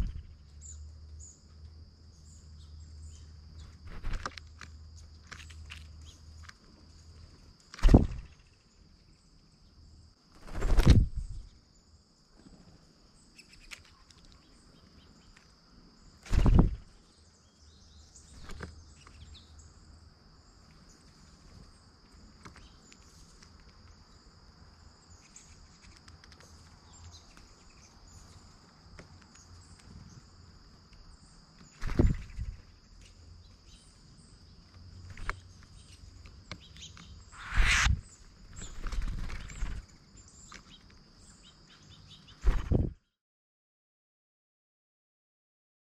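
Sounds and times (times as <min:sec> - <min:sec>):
bird wings fluttering and knocking: 0:00.0 - 0:00.4, 0:03.6 - 0:06.6, 0:07.6 - 0:08.6, 0:10.3 - 0:11.5, 0:16.2 - 0:16.9, 0:18.3 - 0:19.2, 0:31.6 - 0:32.7, 0:35.0 - 0:41.0, 0:42.3 - 0:43.0
insects droning: 0:00.0 - 0:42.8.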